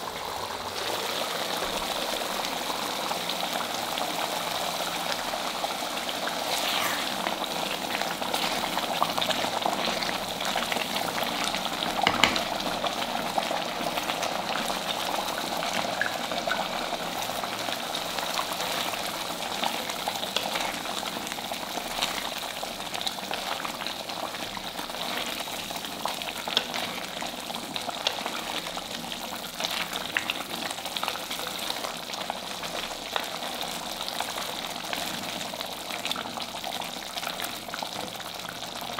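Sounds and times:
spatula stirring gravy: 0:06.4 - 0:12.8, 0:18.1 - 0:30.4.

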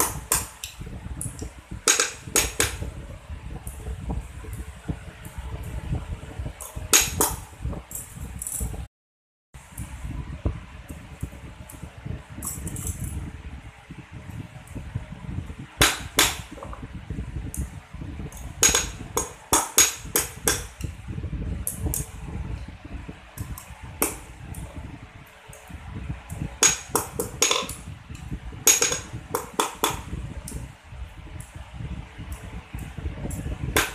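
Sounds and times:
low steady rumble: 0:00.0 - 0:08.9, 0:09.6 - 0:33.9
hammer striking metal on anvil: 0:18.6 - 0:20.7, 0:26.6 - 0:27.7, 0:28.7 - 0:30.0.

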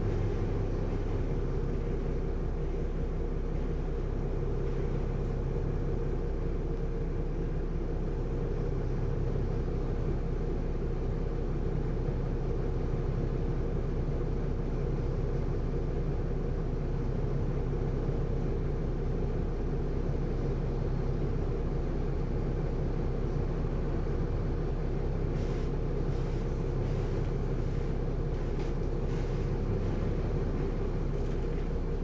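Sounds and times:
bus diesel engine idling: 0:00.0 - 0:32.0.

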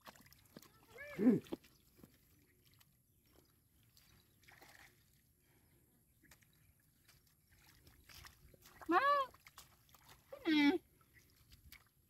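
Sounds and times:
soft splash: 0:00.0 - 0:05.3, 0:06.2 - 0:12.0
hands sloshing in muddy puddle: 0:00.0 - 0:05.4, 0:06.1 - 0:12.0.

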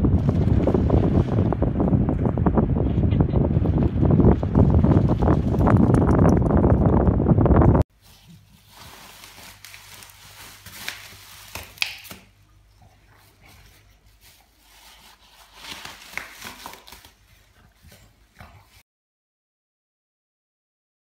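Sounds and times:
bubble wrap crinkling: 0:08.0 - 0:12.4, 0:13.3 - 0:17.9.

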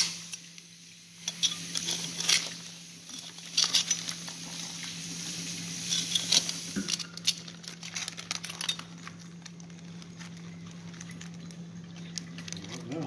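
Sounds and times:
plastic sheeting crinkling: 0:03.4 - 0:13.0
crabs scratching on plastic: 0:07.2 - 0:13.0.

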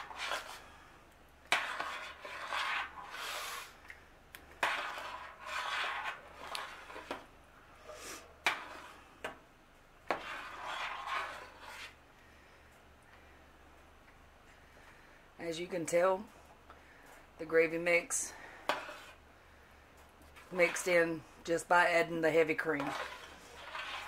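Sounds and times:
metal spoon stirring soup in pot: 0:00.0 - 0:12.0, 0:18.4 - 0:19.2, 0:20.2 - 0:21.1, 0:22.4 - 0:24.0.

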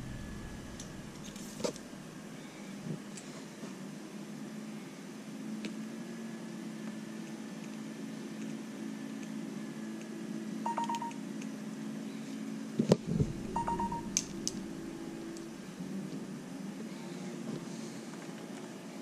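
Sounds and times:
steady low hum: 0:00.0 - 0:03.5, 0:13.0 - 0:18.1
short electronic beeps: 0:10.7 - 0:11.2, 0:13.2 - 0:15.1.

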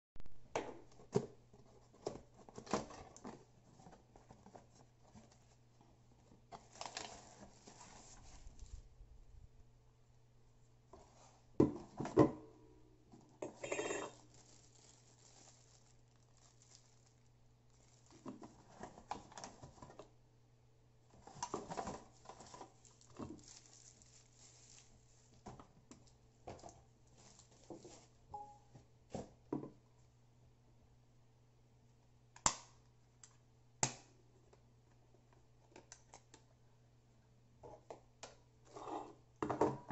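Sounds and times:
cardboard and plastic rustling: 0:00.9 - 0:08.9, 0:14.2 - 0:20.2, 0:21.0 - 0:29.4.

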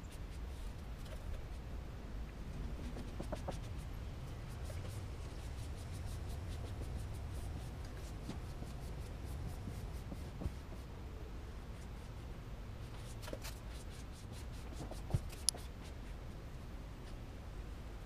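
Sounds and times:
film rubbed with squeegee: 0:02.8 - 0:10.8.

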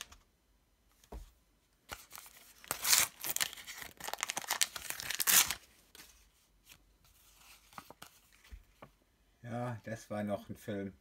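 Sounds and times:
paper packet tearing and crinkling: 0:02.0 - 0:05.6.

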